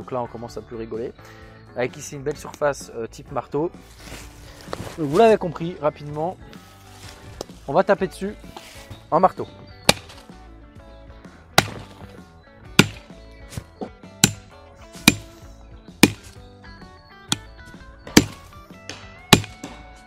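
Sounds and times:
background music: 0:00.0 - 0:20.0
axe hammering metal: 0:09.9 - 0:10.2, 0:11.6 - 0:12.0, 0:12.8 - 0:13.1, 0:14.2 - 0:15.4, 0:16.0 - 0:16.4, 0:17.3 - 0:17.5, 0:18.1 - 0:18.5, 0:19.3 - 0:19.8.

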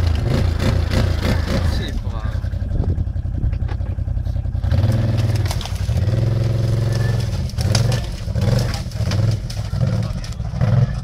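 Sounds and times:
quad bike engine revving: 0:00.0 - 0:11.0
knocks and cracks: 0:04.8 - 0:10.5.

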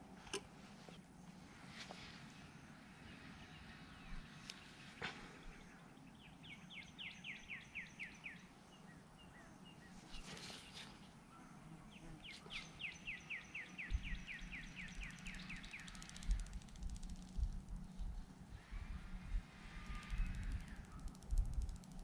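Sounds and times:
songbird singing: 0:01.2 - 0:22.0
brief rustle: 0:10.0 - 0:11.1.

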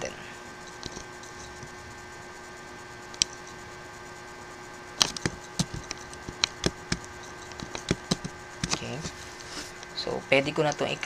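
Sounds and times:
faint electrical hum: 0:00.0 - 0:11.0
keyboard and mouse clicks: 0:05.0 - 0:08.9.

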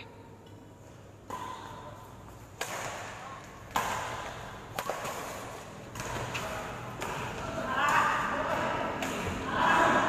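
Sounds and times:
rackets striking shuttlecock: 0:01.2 - 0:09.9.

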